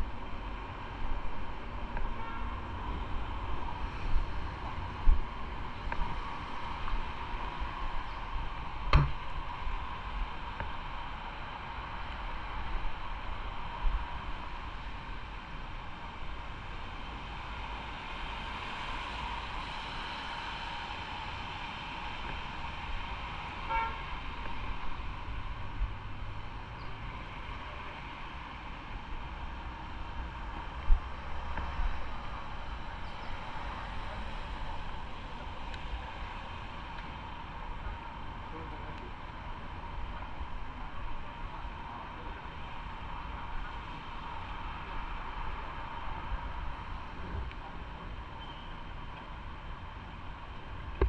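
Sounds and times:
traffic noise: 0.0s - 51.0s
wind and wet road noise: 0.0s - 51.0s
sharp tap on microphone: 8.9s - 9.2s
vehicle horn toot: 23.7s - 24.0s.

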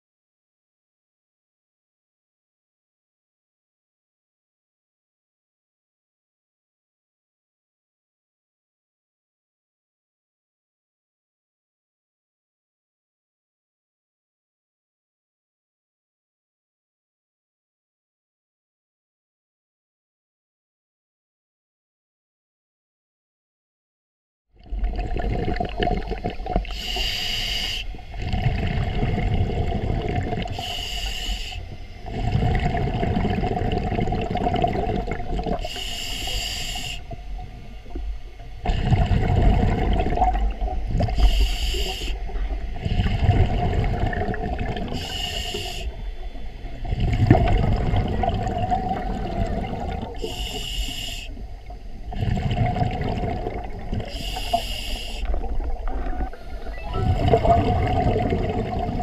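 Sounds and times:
exhaled air bubbling: 24.6s - 59.0s
regulator inhale hiss: 26.6s - 28.2s, 30.4s - 32.1s, 35.6s - 38.0s, 41.1s - 43.3s, 44.9s - 46.7s, 50.2s - 51.8s, 54.0s - 55.6s.

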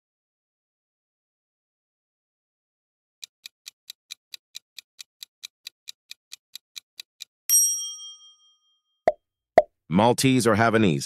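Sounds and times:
clock ticking: 3.2s - 7.4s
bell ding: 7.5s - 8.8s.

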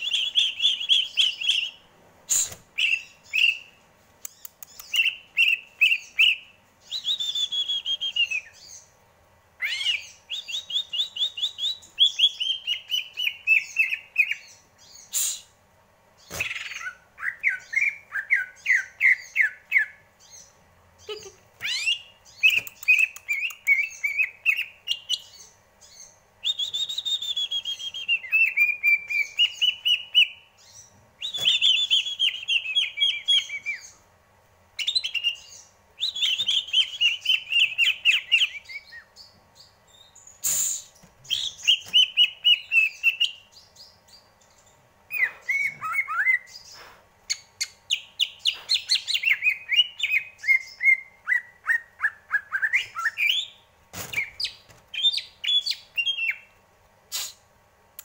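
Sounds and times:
sharp clicks: 4.2s - 5.1s, 22.5s - 23.8s
bird singing rippling whistles: 6.2s - 8.6s, 26.4s - 30.3s.

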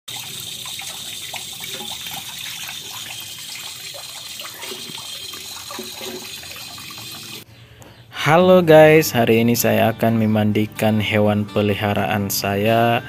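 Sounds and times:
water splashing in a plastic basin: 0.1s - 7.4s.

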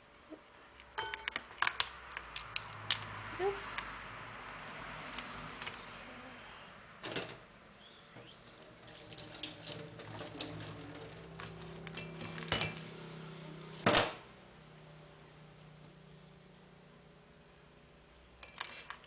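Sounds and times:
brief hiss: 7.7s - 9.2s.

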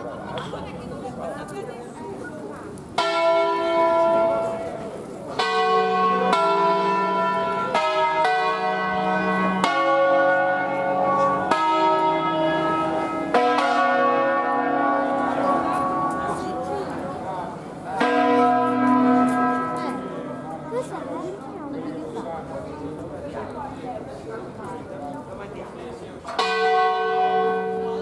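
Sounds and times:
church bells ringing: 3.0s - 21.1s, 26.3s - 28.0s.

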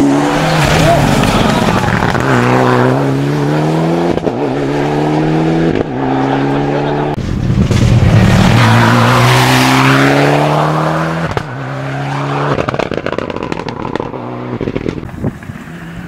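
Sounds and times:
rally car engine accelerating: 0.0s - 16.0s
exhaust pops and crackles: 7.2s - 8.8s, 11.2s - 11.5s, 12.5s - 15.6s.

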